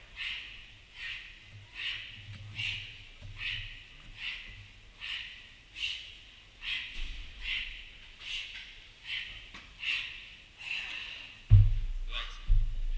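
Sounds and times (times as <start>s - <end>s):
man breathing hard: 4.2s - 11.6s.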